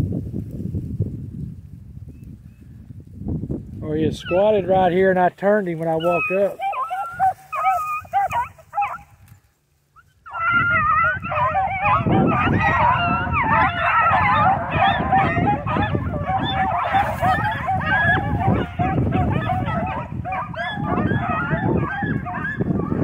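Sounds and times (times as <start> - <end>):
puppies baying and yipping: 4.1 - 9.2, 9.9 - 23.0.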